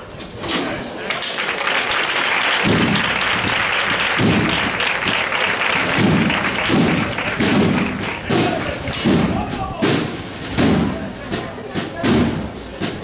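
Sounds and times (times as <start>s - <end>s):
crowd applauding: 0.9s - 9.0s
low thuds: 2.6s - 13.0s.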